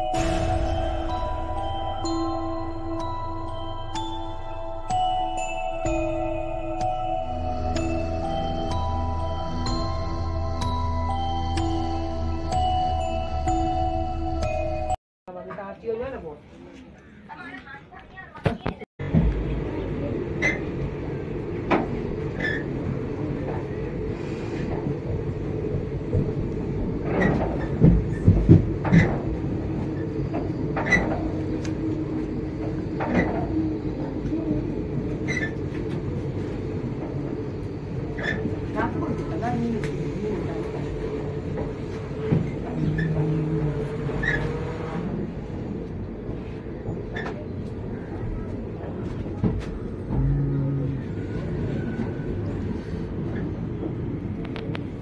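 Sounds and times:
train rumbling: 0:00.0 - 0:15.0, 0:19.0 - 0:55.0
train wheels knocking and rattling: 0:24.6 - 0:33.6.

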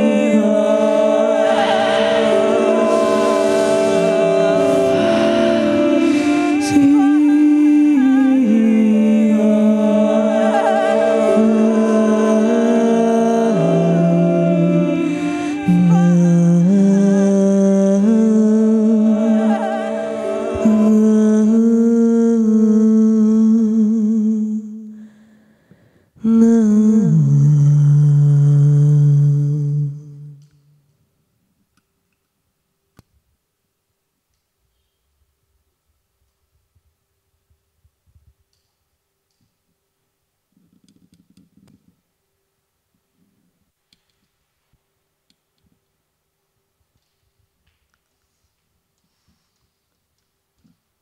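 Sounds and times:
woman humming into a microphone: 0:01.6 - 0:25.0, 0:26.2 - 0:30.5.

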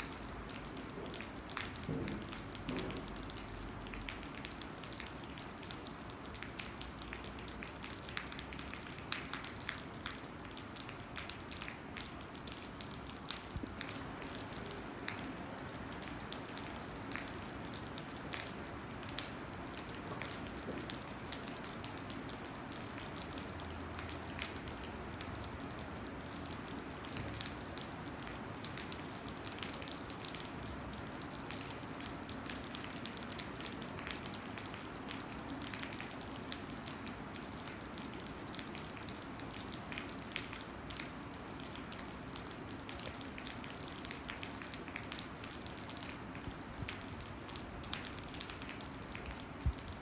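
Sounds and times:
raindrops tapping close by: 0:00.0 - 0:50.0
steady rain falling: 0:00.0 - 0:50.0.

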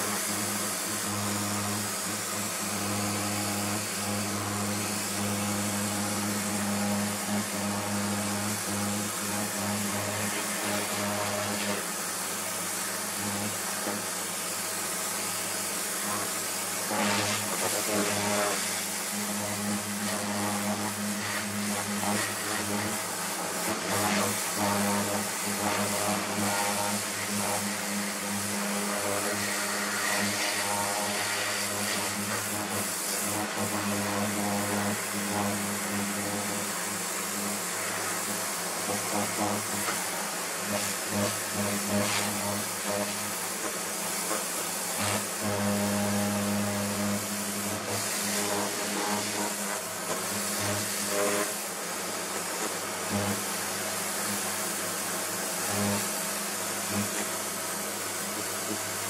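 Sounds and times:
pressure washer motor hum: 0:00.0 - 0:59.0
water jet hissing on plastic: 0:00.0 - 0:59.0.

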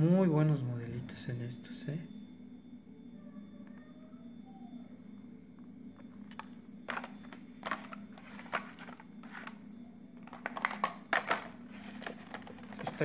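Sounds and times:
low hum: 0:00.0 - 0:13.0
crinkly plastic clacks: 0:06.1 - 0:09.6, 0:10.2 - 0:13.0.

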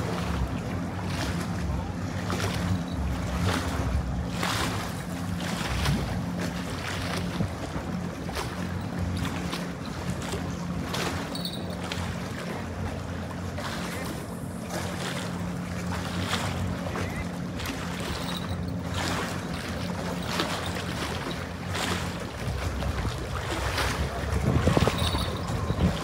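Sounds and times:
steady low hum: 0:00.0 - 0:26.0
water noise: 0:00.0 - 0:26.0
wind: 0:00.0 - 0:26.0.

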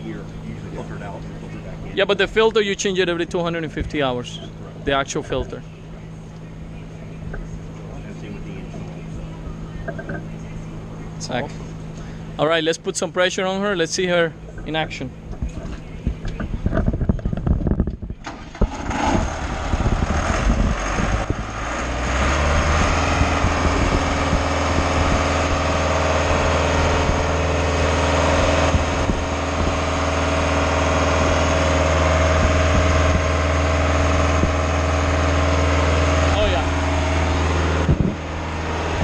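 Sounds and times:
concrete pump engine starting up: 0:18.1 - 0:39.0.

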